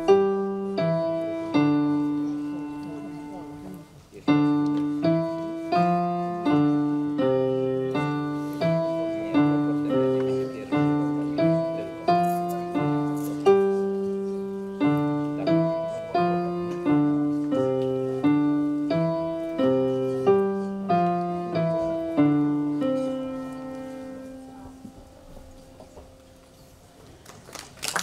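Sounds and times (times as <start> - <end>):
grand piano chords: 0.0 - 27.2.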